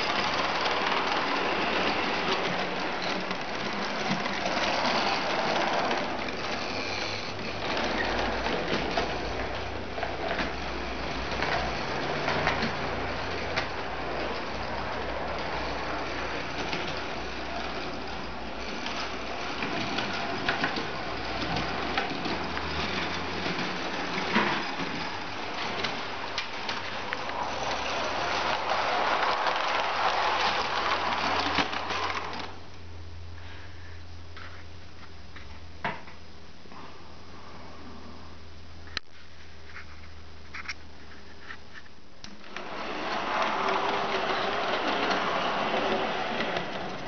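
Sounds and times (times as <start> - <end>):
model tram rumbling and clicking: 0.0 - 32.6, 42.2 - 47.0.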